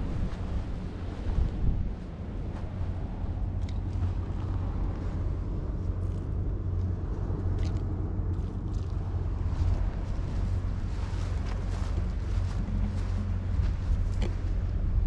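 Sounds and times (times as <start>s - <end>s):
wind rumble on microphone: 0.0s - 15.0s
dry crackles of reeds: 2.6s - 14.5s.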